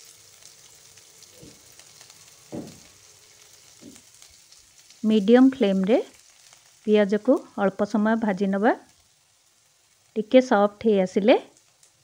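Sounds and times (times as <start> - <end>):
onions sizzling in oil: 0.0 - 12.0
soft bumps: 2.5 - 2.9.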